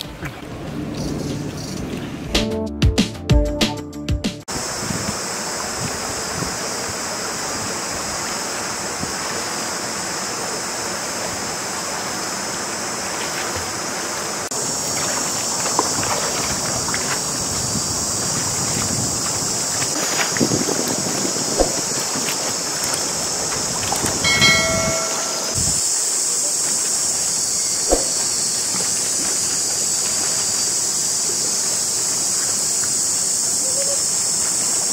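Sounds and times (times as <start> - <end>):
rushing hiss of water: 4.5 - 34.9
water splashing around wading legs: 11.9 - 25.6, 26.6 - 33.2.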